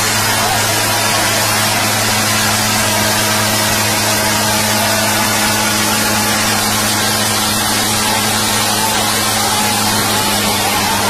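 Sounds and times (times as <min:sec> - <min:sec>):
diesel tractor engines straining: 0:00.0 - 0:11.0.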